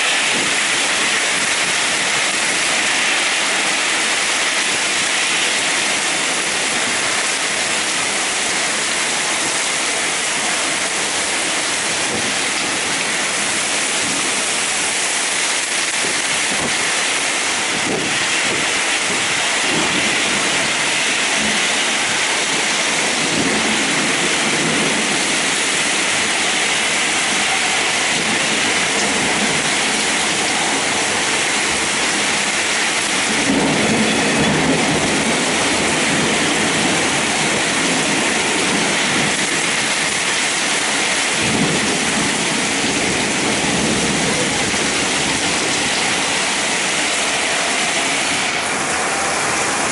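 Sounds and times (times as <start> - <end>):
heavy rain pouring: 0.0 - 49.9
low thunder rumbles: 17.7 - 47.1.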